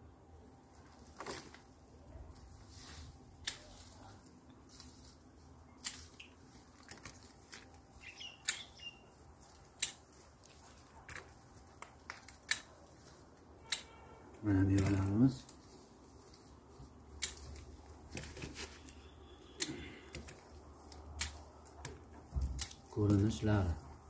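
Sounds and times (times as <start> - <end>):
pruning shears snipping stems: 2.8 - 5.2, 5.8 - 15.6, 17.1 - 23.5.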